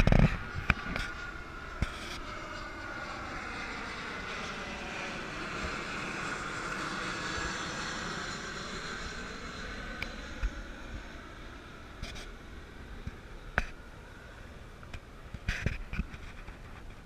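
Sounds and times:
jet airliner passing overhead: 0:00.0 - 0:17.0.

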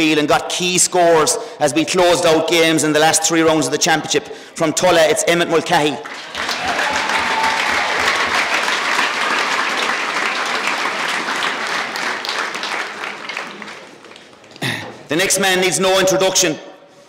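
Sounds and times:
crowd applauding: 0:06.0 - 0:14.9.

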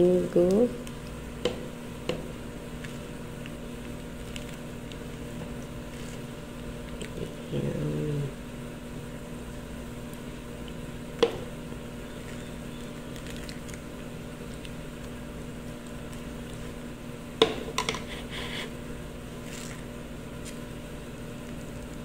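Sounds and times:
low room hum: 0:00.0 - 0:22.0
low humming moan: 0:07.0 - 0:08.7.

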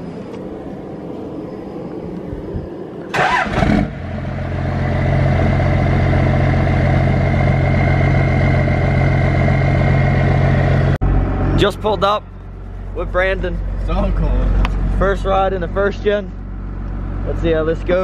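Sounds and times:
faint high whine: 0:00.0 - 0:03.4
diesel engine starting and idling: 0:02.9 - 0:18.0.

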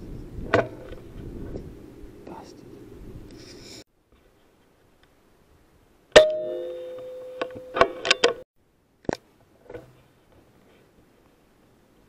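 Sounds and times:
metallic ring: 0:06.2 - 0:08.4.

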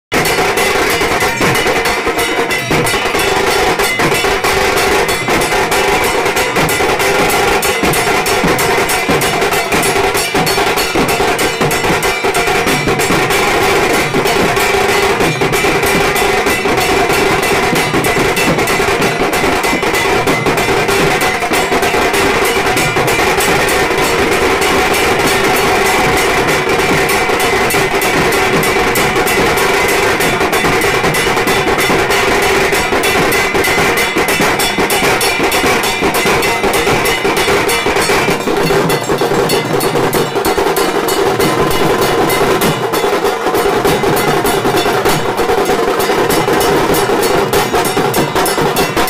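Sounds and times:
clanging metal percussion: 0:00.1 - 0:49.0
fast drum percussion music: 0:00.1 - 0:49.0.

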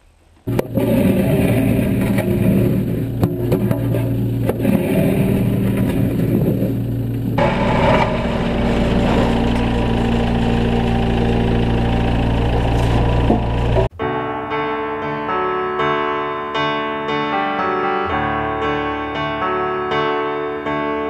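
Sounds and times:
excavator diesel engine: 0:00.5 - 0:13.9.

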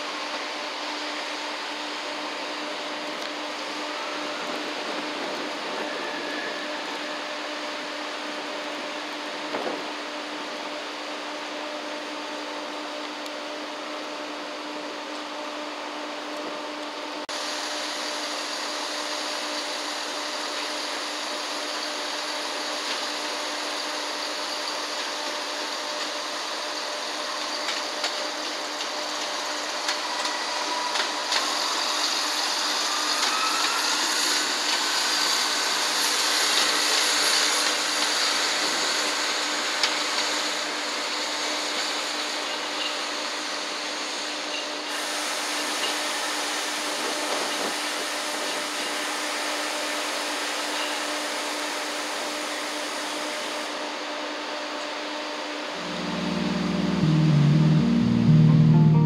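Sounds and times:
diesel train drone: 0:00.0 - 0:59.0
rising whine: 0:55.7 - 0:59.0.

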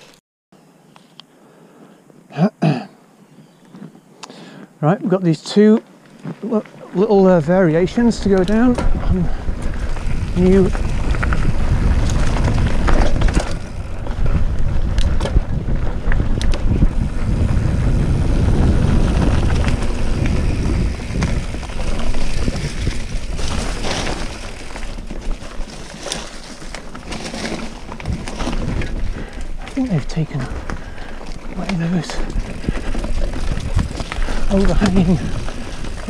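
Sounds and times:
tyre noise on dirt: 0:05.0 - 0:36.0
wind buffeting microphone: 0:06.9 - 0:26.0, 0:26.9 - 0:36.0
bike knocks and rattles: 0:07.8 - 0:36.0.

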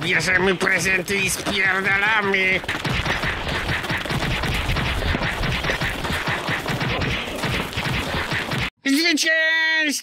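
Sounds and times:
cartoon brawl bangs and hits: 0:02.6 - 0:08.7.

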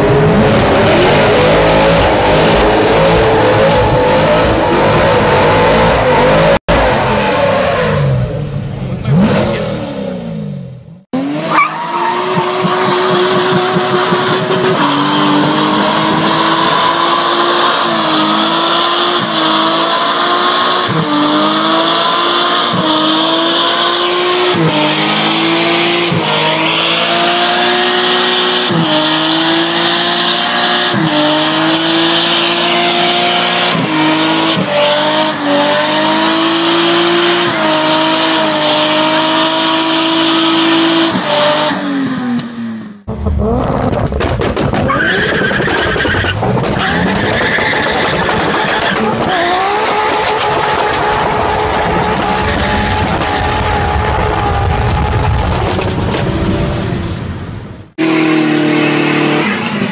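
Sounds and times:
car engine revving high: 0:00.0 - 0:59.9
tyres squealing: 0:43.2 - 0:52.9.

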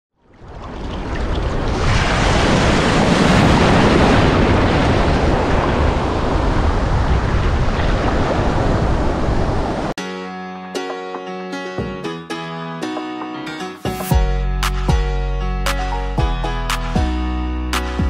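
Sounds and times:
surf breaking and rushing: 0:00.3 - 0:10.0
plucked music: 0:10.0 - 0:18.0.

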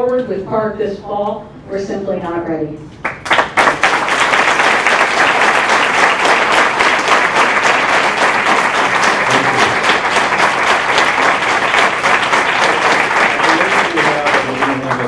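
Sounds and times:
audience applauding: 0:03.0 - 0:15.0.

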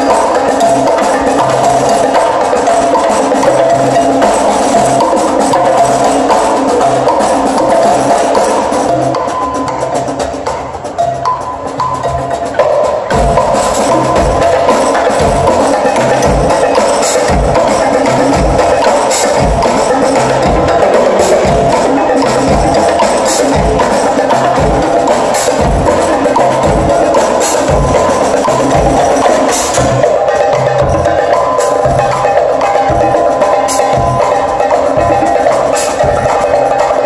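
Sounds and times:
percussion ensemble playing: 0:00.0 - 0:37.0.

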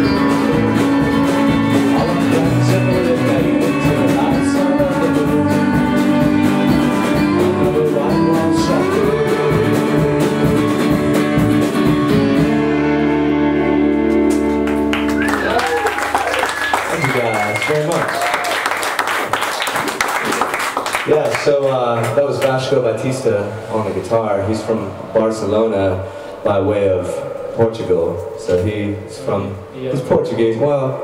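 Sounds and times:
lead vocal: 0:00.0 - 0:11.4
drumming: 0:00.0 - 0:12.4
live band playing: 0:00.0 - 0:18.3.

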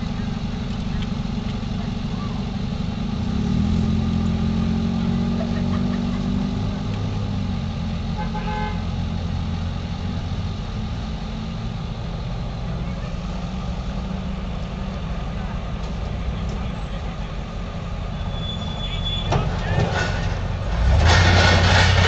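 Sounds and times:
steady low rumble: 0:00.0 - 0:08.4.

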